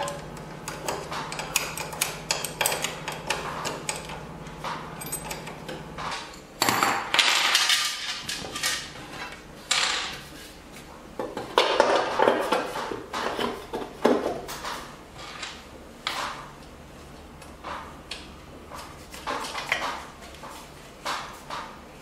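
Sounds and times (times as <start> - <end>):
wrench clinking on metal: 5.0 - 5.6.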